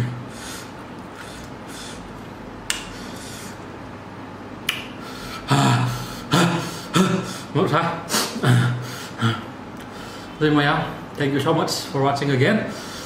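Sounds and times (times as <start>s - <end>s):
man speaking: 7.5s - 8.1s, 10.4s - 12.8s.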